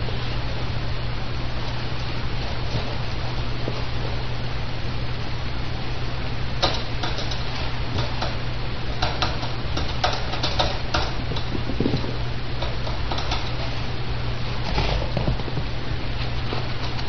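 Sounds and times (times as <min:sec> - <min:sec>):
puppies shuffling on bedding: 0:00.0 - 0:04.9
hiss and low hum: 0:00.0 - 0:17.0.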